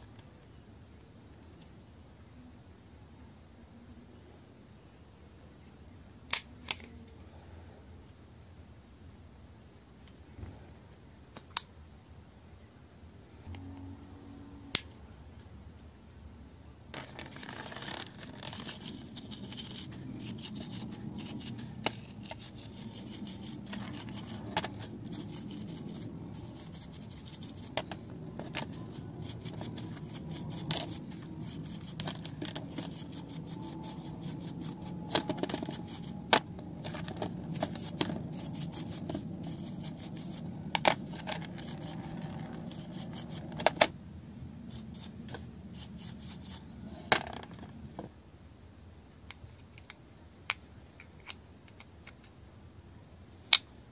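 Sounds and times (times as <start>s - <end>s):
wet brush scrubbing: 17.2s - 43.6s, 44.6s - 46.8s
metal gears clicking: 17.3s - 43.9s.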